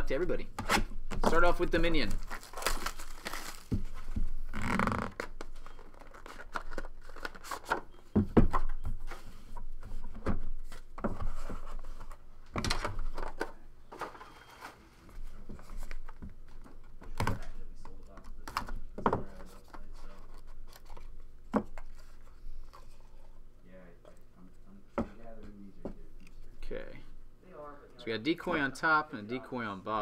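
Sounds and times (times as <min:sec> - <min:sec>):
plastic shrink-wrap crinkling: 0:01.8 - 0:03.8, 0:04.5 - 0:07.6.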